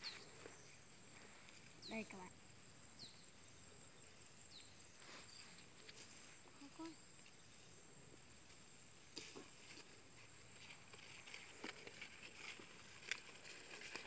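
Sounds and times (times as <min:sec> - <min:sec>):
faint rustling: 0:04.5 - 0:14.0.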